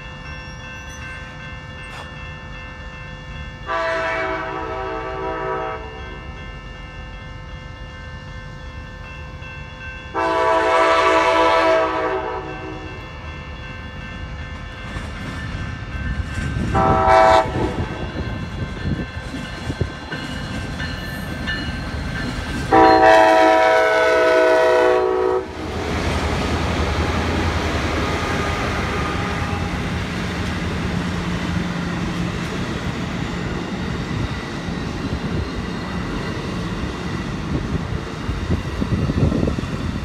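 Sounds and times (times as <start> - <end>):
locomotive engine and wheels rumbling: 0.0 - 40.0
train horn blast: 3.7 - 6.2, 10.1 - 13.0, 16.7 - 18.1, 22.7 - 26.1, 28.0 - 29.8.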